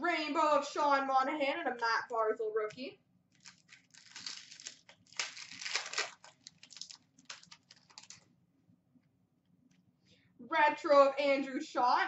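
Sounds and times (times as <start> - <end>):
wrapper tearing and crinkling: 3.3 - 8.3
cards rustling and clicking: 3.4 - 8.2.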